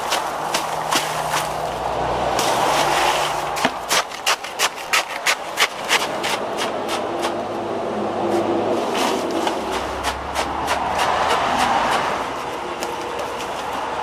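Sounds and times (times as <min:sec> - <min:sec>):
wooden pole jabbing into ice: 0:02.4 - 0:07.4.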